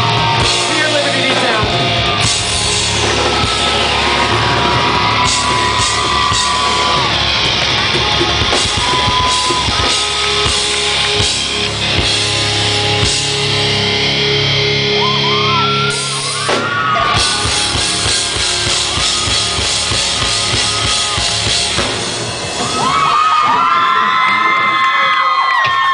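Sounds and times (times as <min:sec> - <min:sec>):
live rock band playing: 0:00.0 - 0:24.3.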